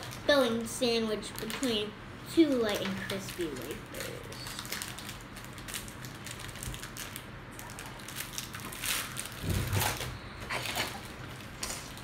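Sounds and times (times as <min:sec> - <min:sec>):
foil wrapper crinkling: 0:02.5 - 0:12.0.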